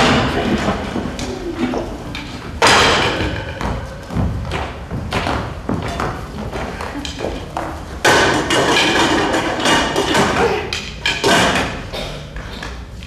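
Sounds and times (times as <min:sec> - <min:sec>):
loud knocks and thumps: 0:02.1 - 0:10.4.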